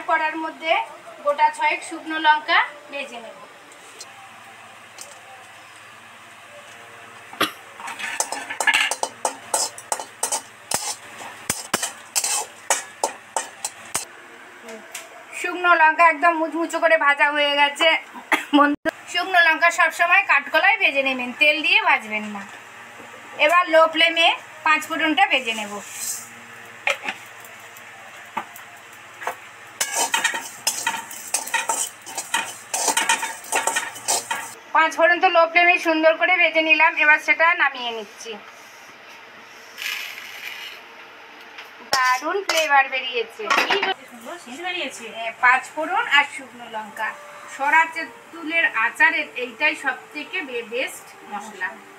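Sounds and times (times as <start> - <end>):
metal spatula scraping metal pan: 7.8 - 14.0, 29.8 - 34.6.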